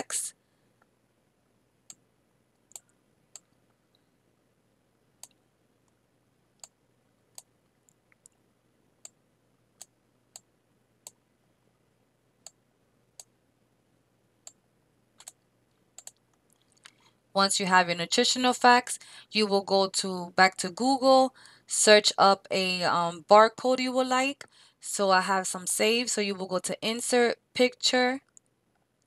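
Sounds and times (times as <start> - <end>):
computer mouse clicking: 2.6 - 4.0, 5.2 - 6.0, 6.6 - 8.4, 15.2 - 17.1.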